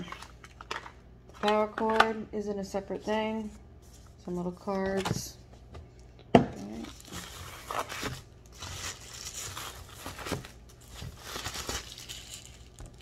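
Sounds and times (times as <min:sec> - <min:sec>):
plastic bag crinkling: 0:06.7 - 0:13.0.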